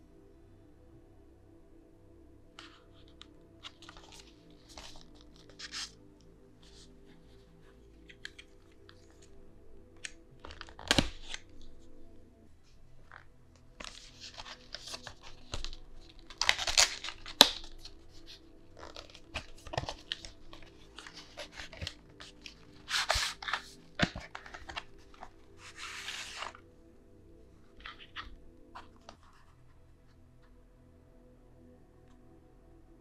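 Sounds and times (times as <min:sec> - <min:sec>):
plastic crackles: 0:10.0 - 0:11.6, 0:13.1 - 0:26.6
cardboard and plastic rustling: 0:13.8 - 0:26.6.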